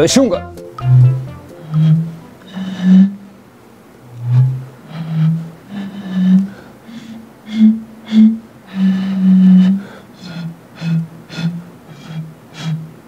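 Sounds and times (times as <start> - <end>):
bottles blown playing a tune: 0.4 - 3.1, 7.5 - 9.6.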